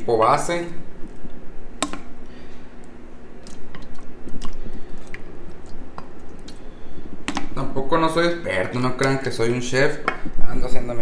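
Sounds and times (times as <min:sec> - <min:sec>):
meat sauce squishing in glass dish: 0:03.4 - 0:07.6.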